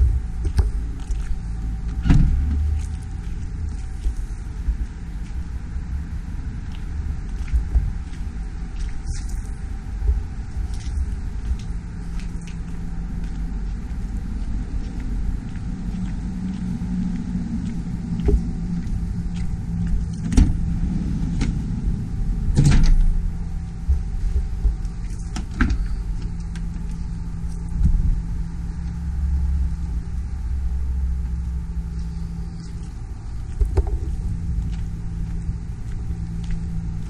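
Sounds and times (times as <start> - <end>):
steady low rumble: 0.0 - 37.0
van doors and handles clunking: 22.5 - 23.2.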